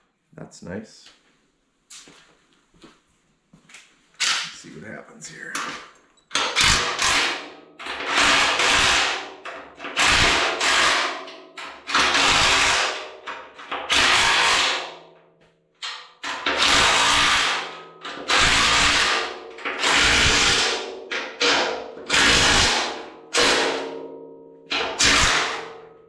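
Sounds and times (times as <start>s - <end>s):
cordless drill bursts: 11.9s - 13.0s, 13.9s - 14.8s, 16.6s - 17.7s, 18.3s - 20.7s.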